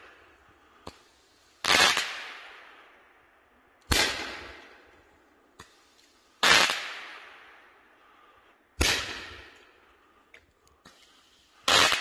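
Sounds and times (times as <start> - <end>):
roman candle shots: 3.9 - 12.0.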